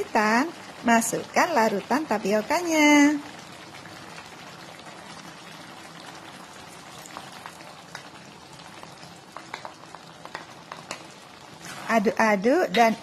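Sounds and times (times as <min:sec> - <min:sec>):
sauce simmering in a wok: 0:00.0 - 0:13.0.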